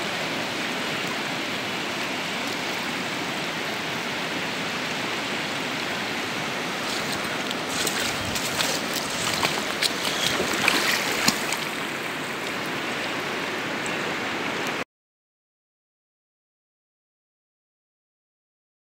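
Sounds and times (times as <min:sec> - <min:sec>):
river running over stones: 0:00.0 - 0:14.8
splashes in water: 0:06.4 - 0:12.8.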